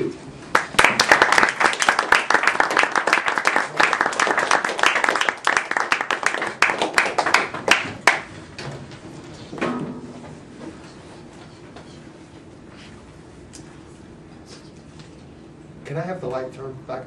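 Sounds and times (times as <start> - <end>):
people clapping: 0.5 - 8.4.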